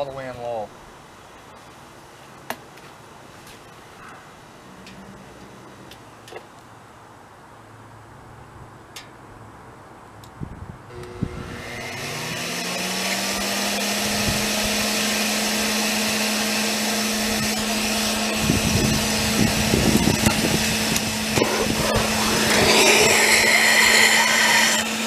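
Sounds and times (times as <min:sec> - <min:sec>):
electric blower humming: 0:10.9 - 0:25.0
propane torch hissing: 0:21.4 - 0:25.0.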